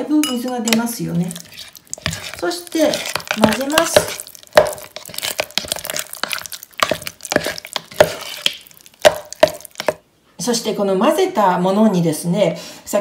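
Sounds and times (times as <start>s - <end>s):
spoon stirring in a bowl: 0.2s - 10.0s.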